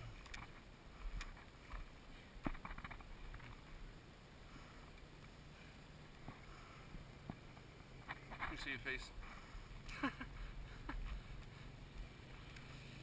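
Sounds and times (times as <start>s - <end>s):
faint clicks and knocks: 0.2s - 3.7s.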